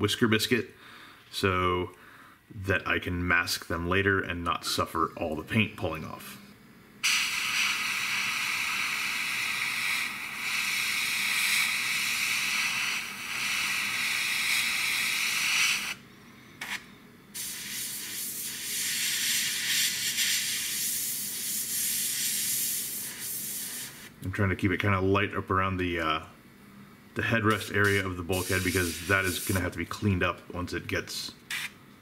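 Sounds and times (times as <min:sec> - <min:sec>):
airbrush hissing: 0:07.0 - 0:16.0, 0:16.6 - 0:24.1, 0:27.4 - 0:29.8.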